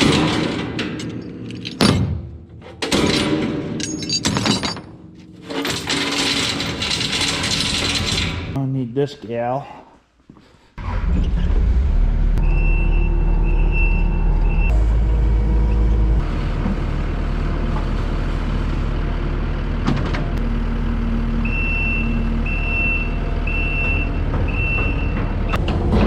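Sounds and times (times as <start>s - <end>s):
diesel engine running: 10.8s - 26.0s
back-up alarm beeping: 12.4s - 14.8s, 21.5s - 25.6s.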